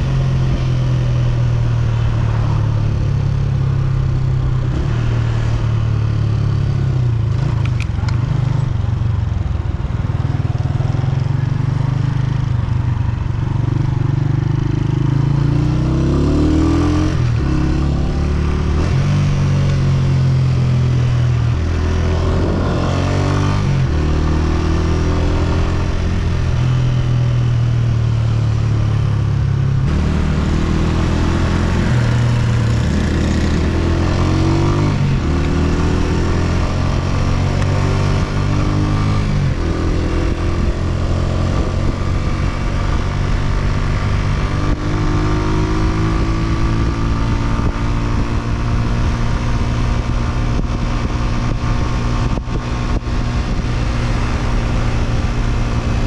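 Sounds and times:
motorcycle engine accelerating: 0.0s - 56.0s
wind and road noise: 0.0s - 56.0s.

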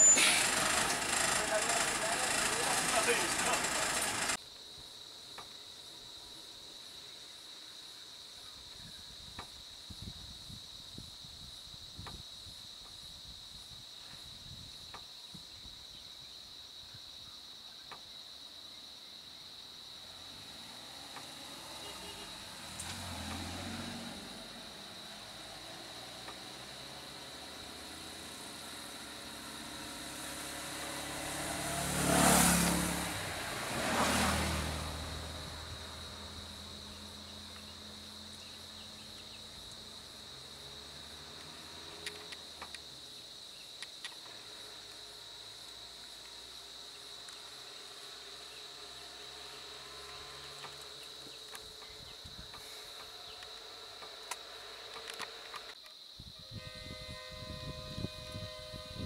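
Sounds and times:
small car driving past: 0.0s - 4.4s, 20.0s - 43.1s, 46.8s - 55.4s
vehicle engine idling: 0.0s - 4.4s
high insect drone: 0.0s - 59.0s
motorcycle driving past: 20.0s - 39.4s, 47.9s - 52.1s.

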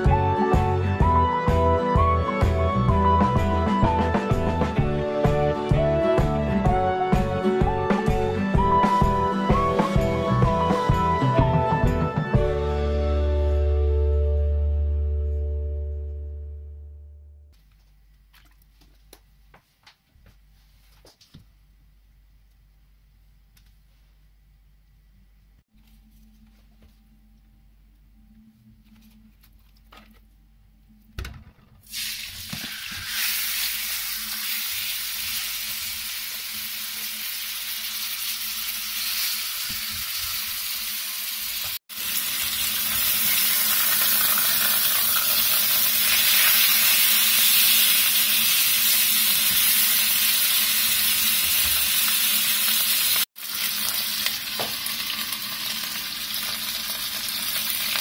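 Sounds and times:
meat sizzling in oil: 31.9s - 58.0s.

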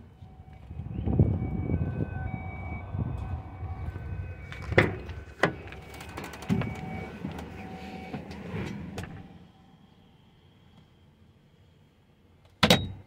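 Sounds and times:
low rumble: 0.0s - 10.2s.

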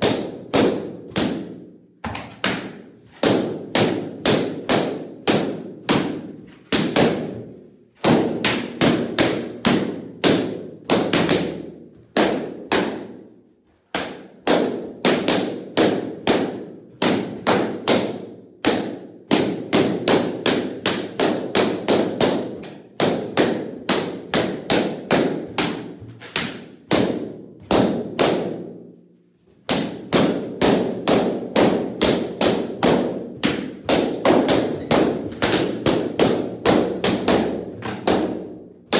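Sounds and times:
balloons popping: 29.6s - 38.9s.

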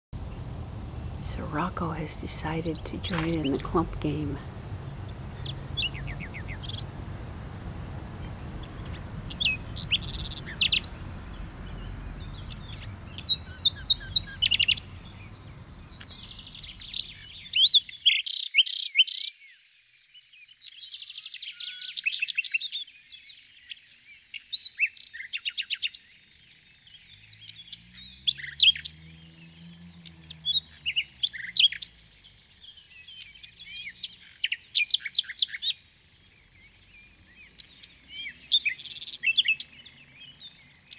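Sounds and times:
low background rumble: 0.2s - 18.0s
songbirds chirping and trilling: 0.2s - 40.9s.

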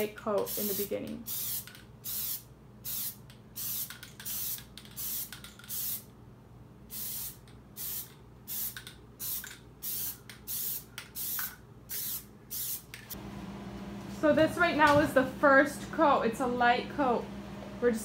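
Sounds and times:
aerosol can spraying: 0.4s - 6.1s, 6.9s - 13.0s.

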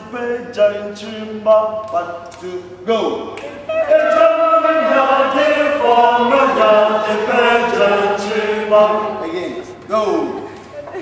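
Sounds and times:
choir singing: 3.8s - 9.7s.

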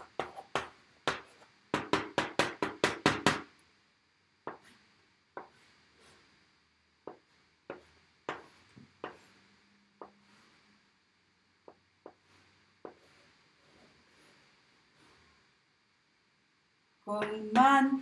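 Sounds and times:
chalk scratching on blackboard: 0.0s - 3.3s, 4.5s - 4.8s, 5.4s - 6.3s, 7.0s - 10.8s, 12.0s - 15.4s.

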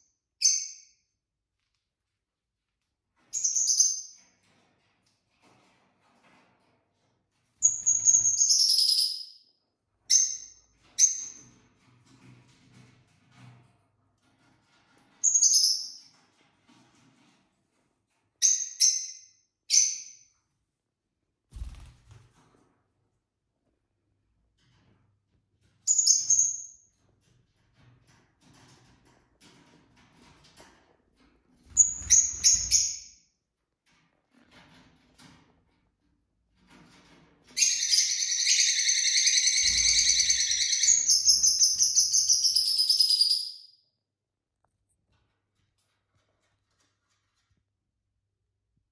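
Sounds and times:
bird high-pitched chirps: 7.6s - 9.3s, 37.6s - 43.6s.

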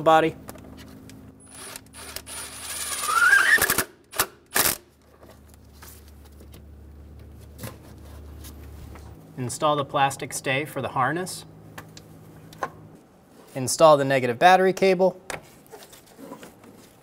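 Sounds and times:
power tool motor whirring: 1.4s - 4.8s.

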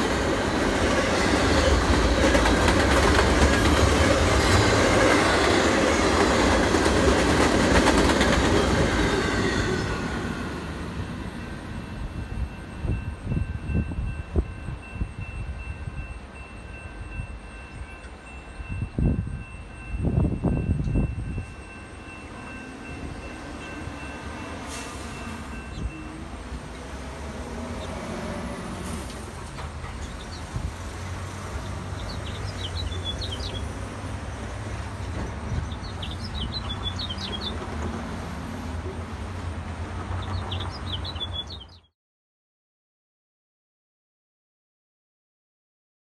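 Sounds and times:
crossing signal tone: 11.3s - 26.8s
birds chirping: 31.4s - 37.8s, 40.1s - 41.9s.

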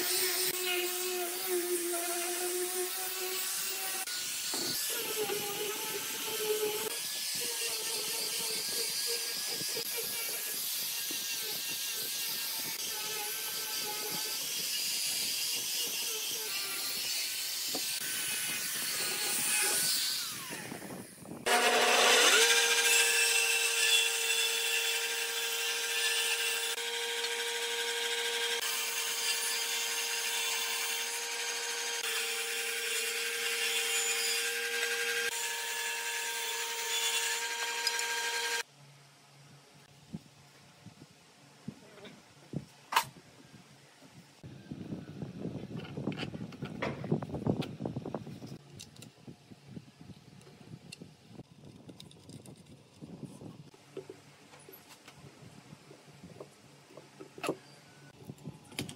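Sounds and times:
angle grinder sanding wood: 0.0s - 38.7s
jointer-planer whine: 21.5s - 30.3s.

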